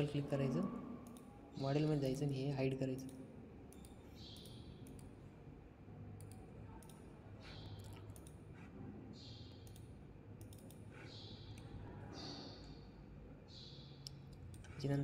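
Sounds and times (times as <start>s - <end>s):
computer mouse clicking: 1.0s - 1.3s, 2.1s - 5.2s, 6.2s - 12.8s, 13.6s - 15.0s.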